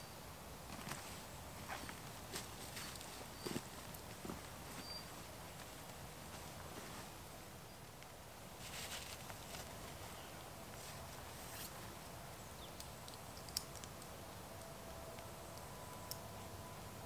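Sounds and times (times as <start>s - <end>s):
strap rustling: 8.6s - 11.9s
small clicks: 12.8s - 16.3s.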